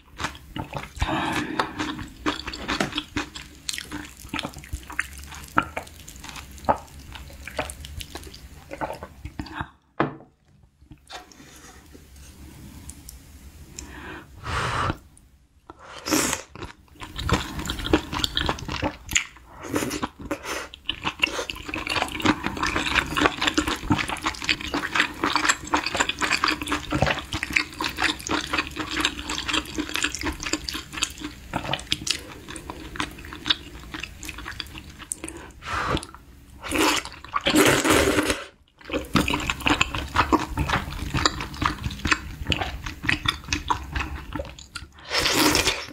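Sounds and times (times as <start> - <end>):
wet chewing with mouth clicks: 0.1 - 9.8, 16.4 - 37.6, 38.7 - 45.9
slurping: 15.7 - 45.9.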